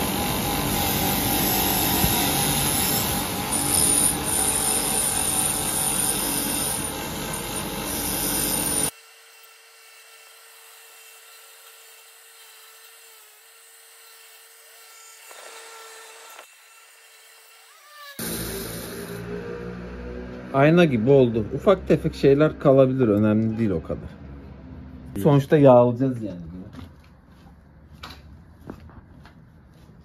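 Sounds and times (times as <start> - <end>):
bench grinder grinding metal: 0.0 - 19.5.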